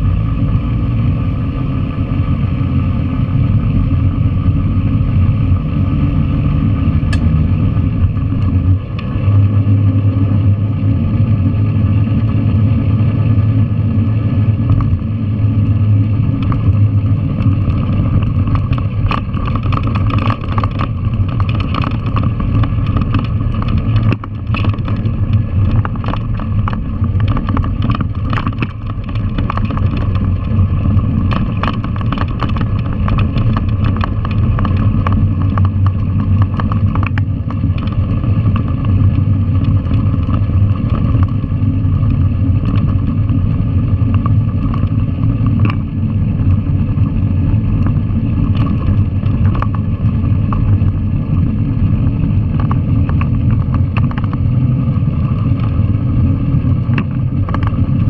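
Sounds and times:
motorcycle engine running: 0.0 - 58.0
clicks and knocks from gravel: 16.3 - 41.4.

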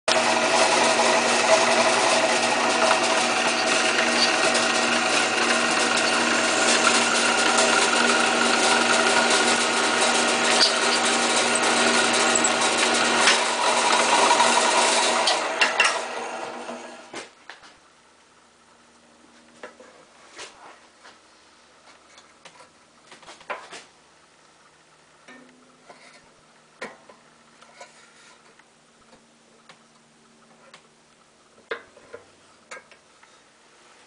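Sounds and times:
drill press motor humming: 0.1 - 17.1.

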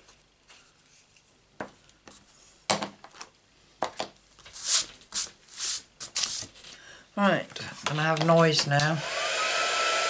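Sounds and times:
paper rubbing: 4.5 - 6.6.

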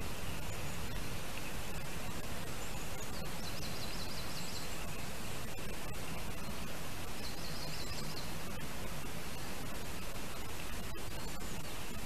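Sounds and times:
microphone hiss: 0.0 - 12.0
small bird trill: 2.5 - 4.9, 6.4 - 8.4.

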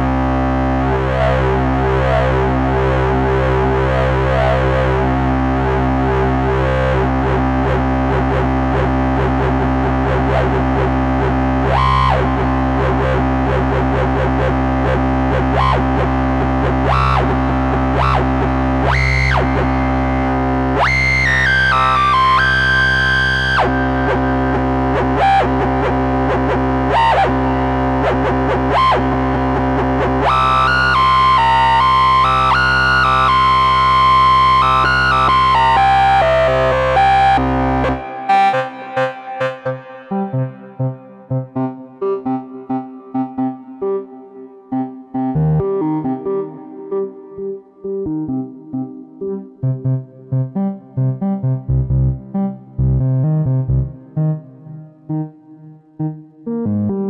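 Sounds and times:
synthesizer low held note: 33.0 - 57.0.

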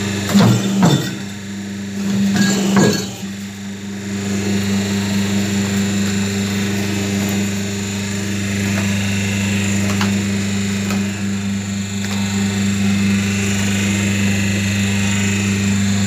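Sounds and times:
electric motor hum: 0.0 - 16.0
machine clattering knocks: 0.3 - 1.3.

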